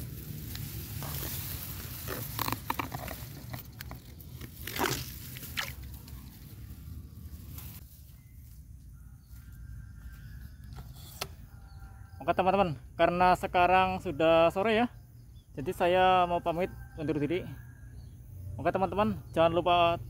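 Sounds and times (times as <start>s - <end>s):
hands splashing in water: 4.4s - 6.0s.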